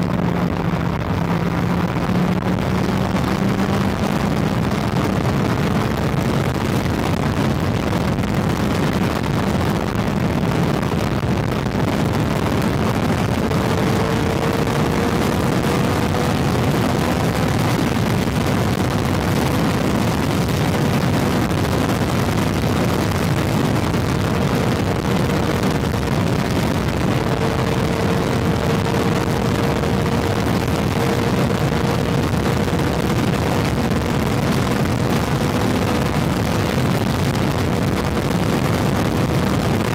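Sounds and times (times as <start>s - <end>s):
motorcycle engine cruising: 0.0s - 39.9s
wind and road noise: 0.0s - 39.9s.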